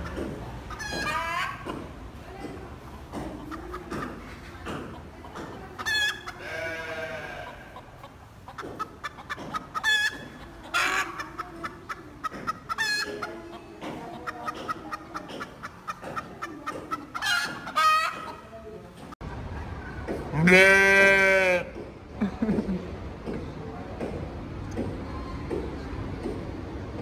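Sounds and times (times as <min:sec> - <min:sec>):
chickens squawking: 0:00.0 - 0:01.9, 0:03.2 - 0:18.6
chickens clucking: 0:00.0 - 0:20.4.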